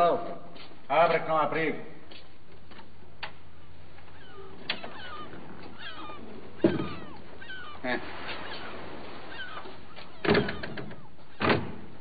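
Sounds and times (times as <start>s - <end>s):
high animal chirps: 4.1s - 11.2s
wooden door thud: 6.6s - 7.2s, 10.0s - 12.0s.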